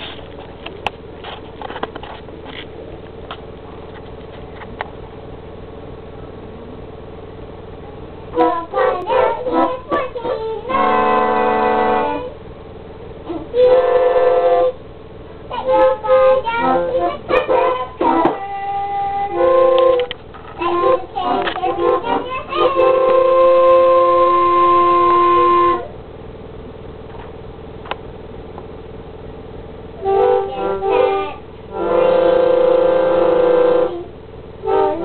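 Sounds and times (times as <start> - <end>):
faint organ hum: 0.0 - 35.0
organ notes and chords: 8.4 - 12.4, 15.6 - 25.9, 30.0 - 35.0.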